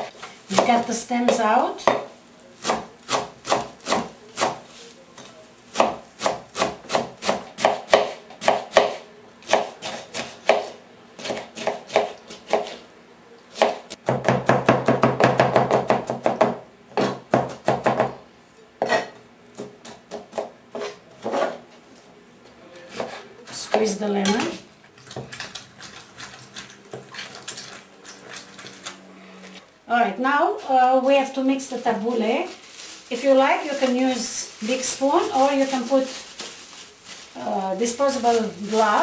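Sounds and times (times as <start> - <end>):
knife chopping herbs on board: 0.5 - 4.6, 5.2 - 12.8, 22.9 - 23.2.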